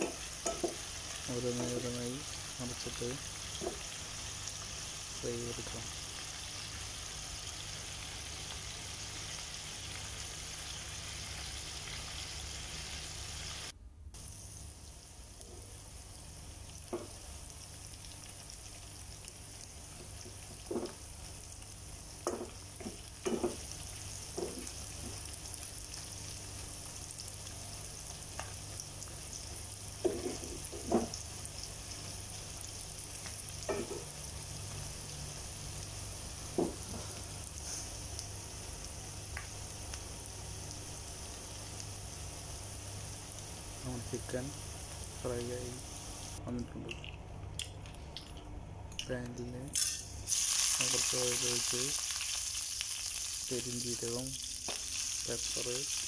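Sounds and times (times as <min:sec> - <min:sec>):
spoon knocking metal pan: 0:00.0 - 0:00.8
chicken sizzling in hot oil: 0:00.0 - 0:46.4, 0:49.8 - 0:56.0.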